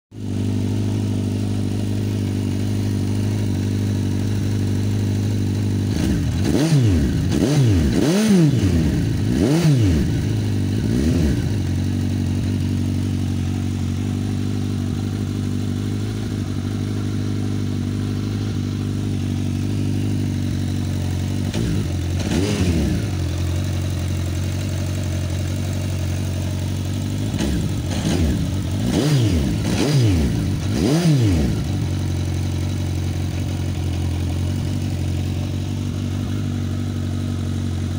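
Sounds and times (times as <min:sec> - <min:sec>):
motorcycle engine idling: 0:00.2 - 0:37.9
motorcycle engine revving: 0:00.2 - 0:37.9.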